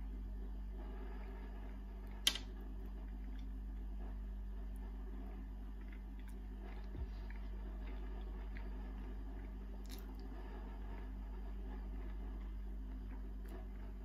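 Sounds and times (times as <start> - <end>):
low hum: 0.0 - 14.0
person chewing: 5.8 - 8.8, 9.4 - 10.3.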